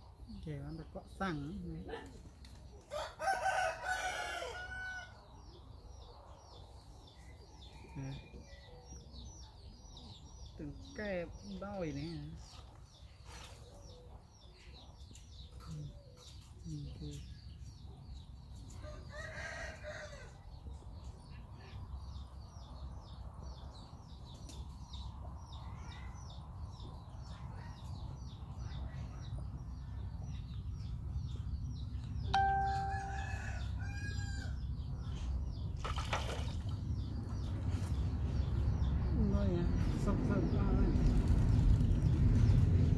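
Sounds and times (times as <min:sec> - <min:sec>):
rooster crowing: 0:02.9 - 0:05.2
low steady rumble: 0:36.7 - 0:42.9.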